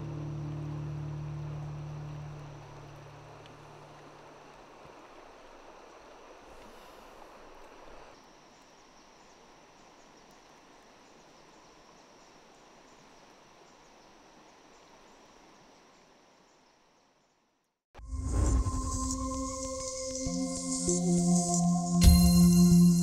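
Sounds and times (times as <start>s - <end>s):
flowing water hiss: 0.0s - 16.7s
high insect trill: 18.0s - 23.0s.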